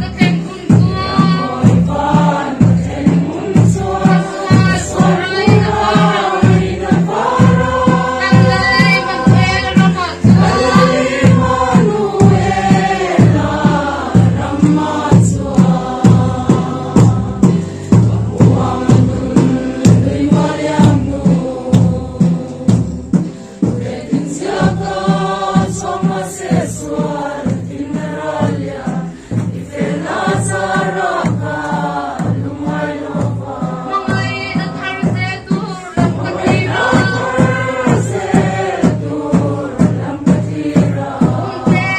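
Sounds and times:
group singing a hymn: 0.0s - 41.9s
steady low beat: 0.0s - 41.9s.

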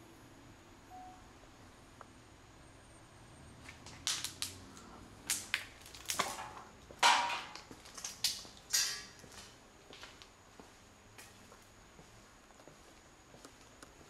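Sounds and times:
footsteps crunching over debris: 3.6s - 13.7s.

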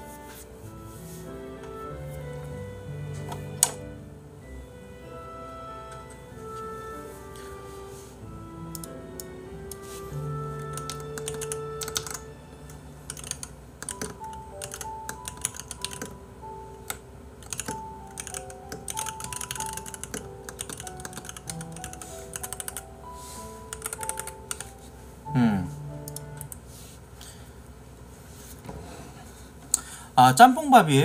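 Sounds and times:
soft background music: 0.0s - 29.4s, 30.2s - 31.0s
keyboard typing clicks: 8.7s - 9.8s, 10.6s - 12.2s, 13.1s - 16.2s, 16.9s - 22.8s, 23.7s - 24.7s.

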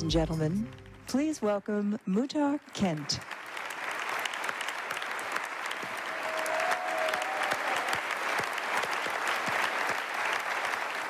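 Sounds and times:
large audience applauding: 2.8s - 11.0s.

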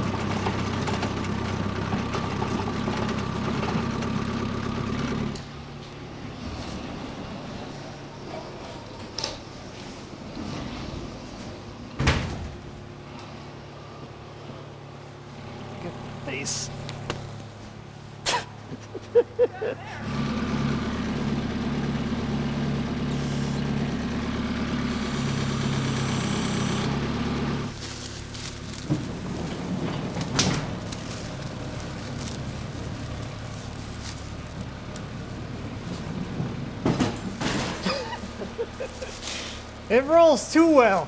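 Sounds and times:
motor running: 20.0s - 30.2s.

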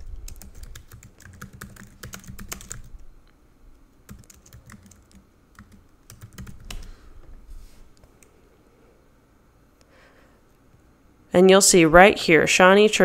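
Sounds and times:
computer keyboard typing: 0.0s - 3.0s, 4.1s - 6.9s.

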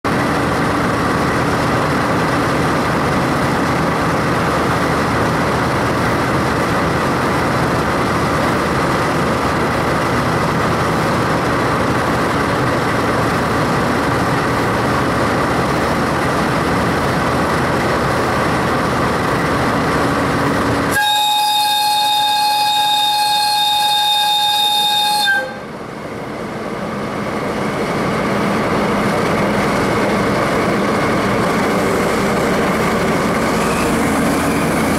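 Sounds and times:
diesel locomotive running: 0.0s - 34.9s
locomotive whistle blast: 20.9s - 25.7s.

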